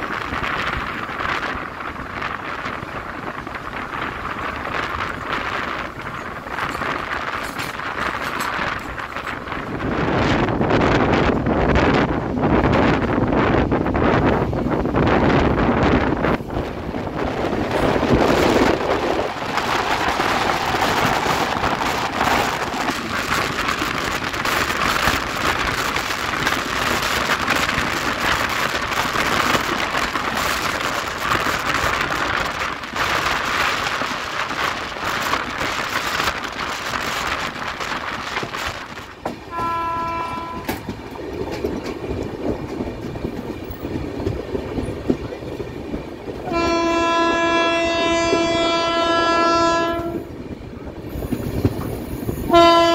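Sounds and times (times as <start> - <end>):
rush of wind and track noise: 0.0 - 52.9
train wheels clattering on rails: 0.0 - 52.9
train horn: 39.5 - 40.8, 46.4 - 50.3, 52.5 - 52.9.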